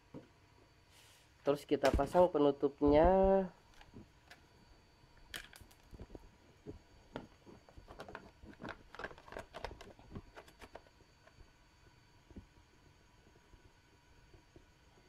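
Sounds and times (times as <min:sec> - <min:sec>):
plastic clicks and knocks: 0:07.1 - 0:11.3.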